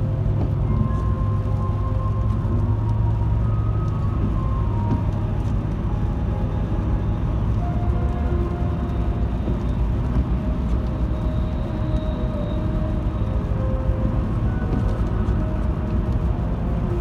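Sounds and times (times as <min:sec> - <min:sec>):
car road noise from inside: 0:00.0 - 0:17.0.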